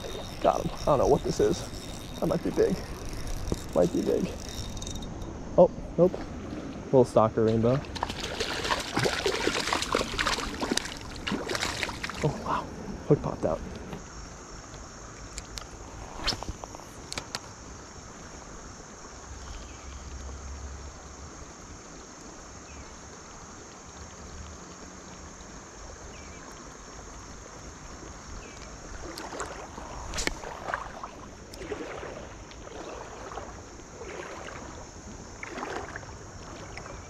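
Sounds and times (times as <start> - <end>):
water sloshing and splashing: 0.0 - 12.7, 24.7 - 37.0
creek water running: 0.0 - 37.0.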